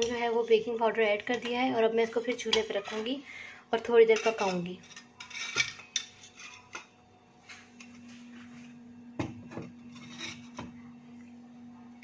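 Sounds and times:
metal spoon stirring in pan: 0:00.0 - 0:03.2, 0:04.0 - 0:06.9
steady low hum: 0:00.0 - 0:12.0.

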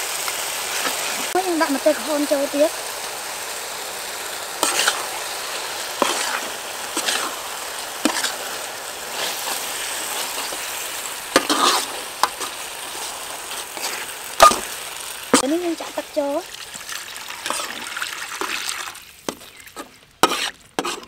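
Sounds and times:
beef sizzling in hot oil: 0:00.0 - 0:21.0
metal spatula scraping pan: 0:04.6 - 0:14.7, 0:17.4 - 0:18.6, 0:19.3 - 0:21.0.

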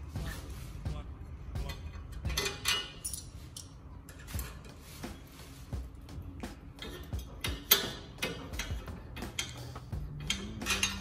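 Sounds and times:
spanner clinking on metal bolts: 0:01.7 - 0:04.6, 0:06.8 - 0:11.0.

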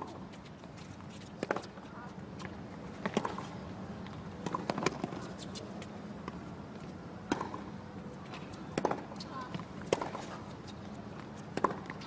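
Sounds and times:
tennis ball bouncing: 0:01.4 - 0:06.4, 0:07.2 - 0:12.0
racket striking tennis ball: 0:07.3 - 0:07.7, 0:08.7 - 0:09.2, 0:09.8 - 0:10.4, 0:11.5 - 0:12.0.

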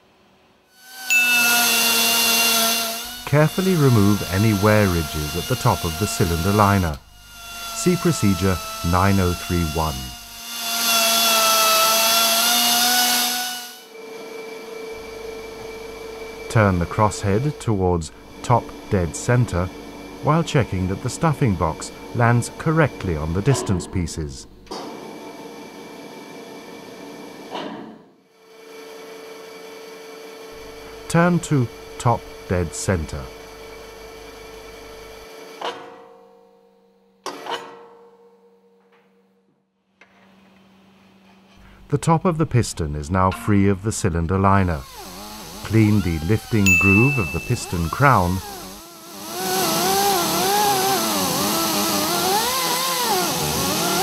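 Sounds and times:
rotary grinder grinding steel: 0:00.8 - 0:13.9, 0:44.8 - 0:54.0
steady mechanical hum: 0:01.6 - 0:27.7, 0:28.5 - 0:35.6, 0:40.0 - 0:54.0.

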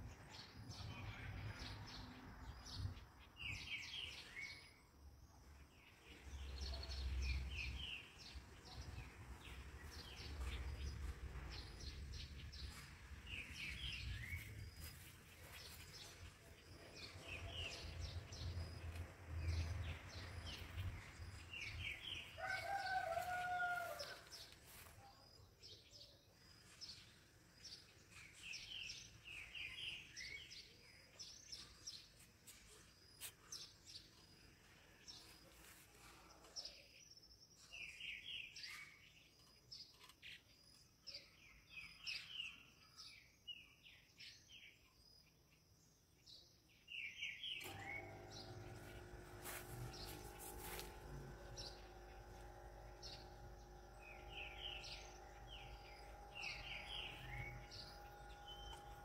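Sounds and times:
small birds chirping: 0:00.0 - 0:59.0
rooster crowing: 0:22.3 - 0:24.5
low rumble: 0:48.1 - 0:59.0.

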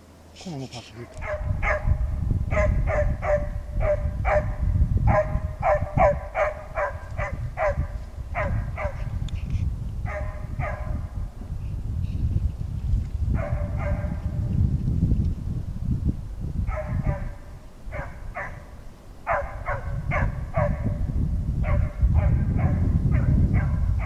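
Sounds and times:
hound yelping: 0:02.5 - 0:07.8, 0:19.3 - 0:20.8.

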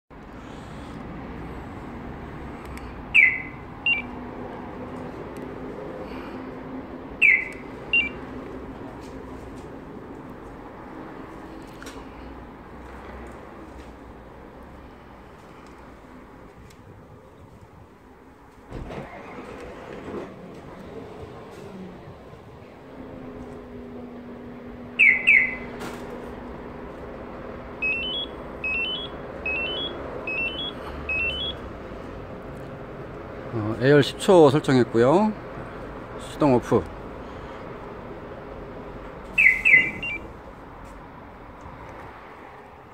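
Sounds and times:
alarm chirp falling in pitch: 0:03.2 - 0:04.1, 0:07.2 - 0:08.2, 0:25.0 - 0:25.7, 0:27.8 - 0:31.6, 0:39.4 - 0:40.2
short beep: 0:03.2 - 0:04.1, 0:07.2 - 0:08.2, 0:27.8 - 0:31.6, 0:39.4 - 0:40.2.

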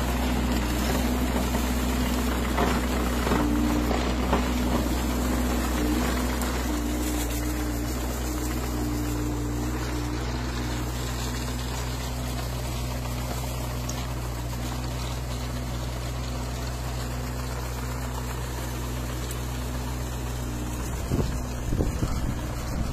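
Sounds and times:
tractor engine humming: 0:00.0 - 0:22.9
wind buffeting microphone: 0:20.9 - 0:22.9.

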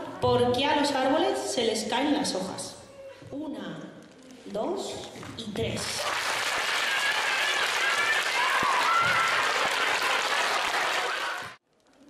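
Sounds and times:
children clapping: 0:05.8 - 0:11.6.

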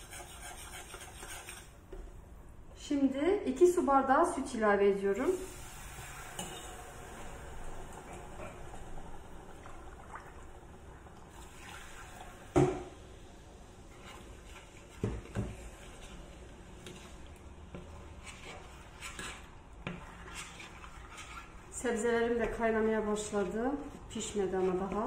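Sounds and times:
metal utensil stirring in saucepan: 0:00.0 - 0:01.7, 0:13.9 - 0:25.0.

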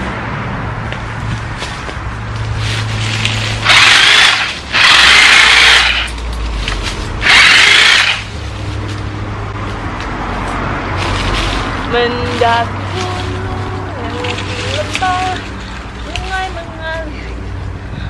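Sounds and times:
electric chainsaw cutting branches: 0:03.1 - 0:08.3.

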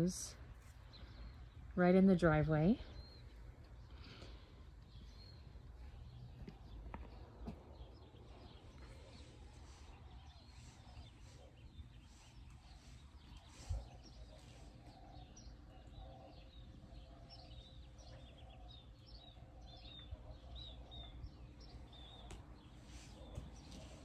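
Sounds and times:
birds chirping: 0:00.0 - 0:24.0.

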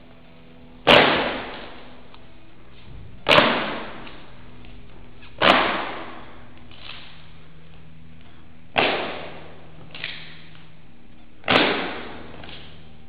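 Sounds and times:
fan snapping open: 0:09.9 - 0:10.5.

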